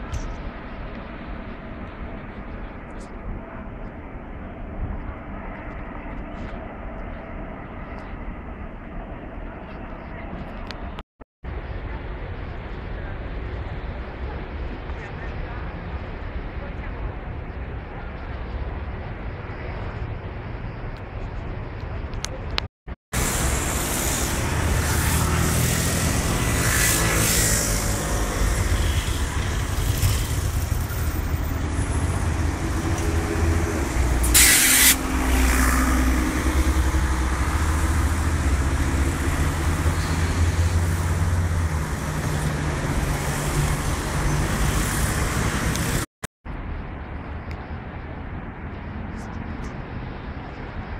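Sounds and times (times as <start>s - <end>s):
heavy engine humming: 23.2s - 46.0s
short sharp hiss: 34.2s - 35.0s.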